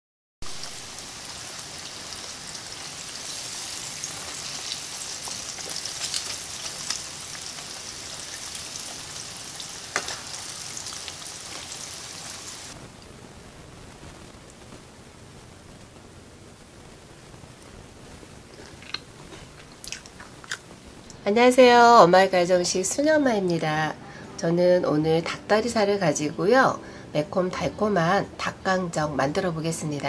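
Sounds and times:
chicken deep-frying in oil: 0:00.4 - 0:12.8.

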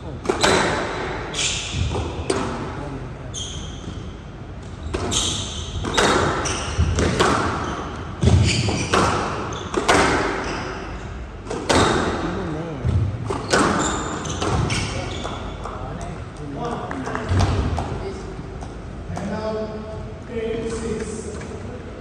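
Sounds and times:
shoes squeaking on court floor: 0:03.3 - 0:11.2, 0:13.3 - 0:16.1.

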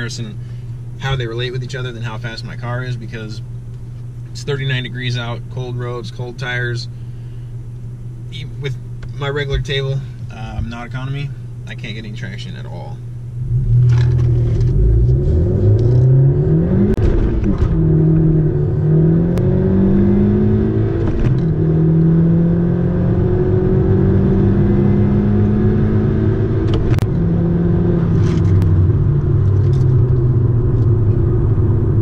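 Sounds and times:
car engine accelerating: 0:13.3 - 0:32.0.

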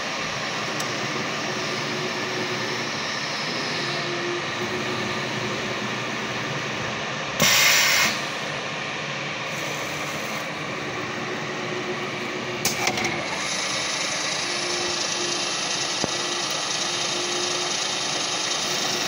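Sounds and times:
milling machine running: 0:00.0 - 0:19.0
compressed air hiss: 0:07.4 - 0:08.2.

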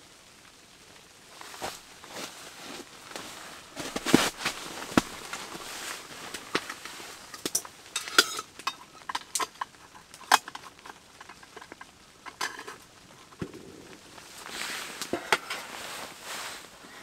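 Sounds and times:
metallic clinks of camping stove: 0:06.3 - 0:13.4.

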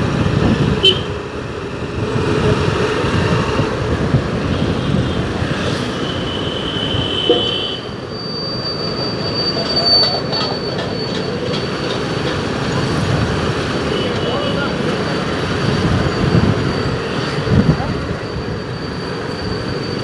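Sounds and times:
moving vehicle rumble: 0:00.0 - 0:20.0
high squeal: 0:04.8 - 0:13.2, 0:13.8 - 0:20.0.

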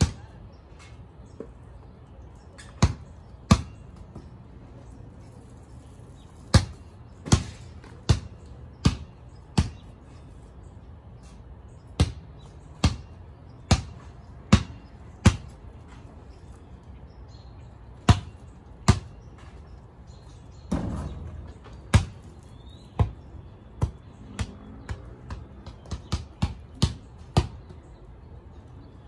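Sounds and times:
basketball bouncing on concrete: 0:00.0 - 0:00.4, 0:02.6 - 0:04.4, 0:05.9 - 0:10.0, 0:12.0 - 0:16.1, 0:17.8 - 0:19.7, 0:20.5 - 0:27.8.

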